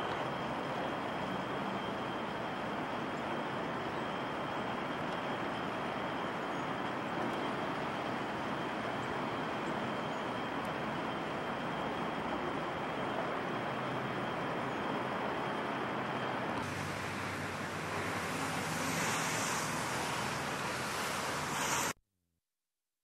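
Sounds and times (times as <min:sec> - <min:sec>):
distant traffic: 0:00.0 - 0:22.0.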